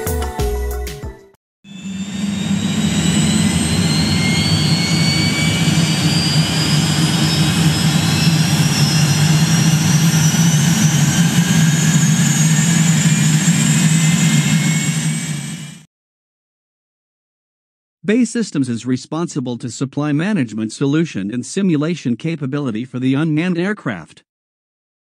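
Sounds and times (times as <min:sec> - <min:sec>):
high turbine whine: 0:01.7 - 0:15.9
jet engine deep hum: 0:01.8 - 0:15.8.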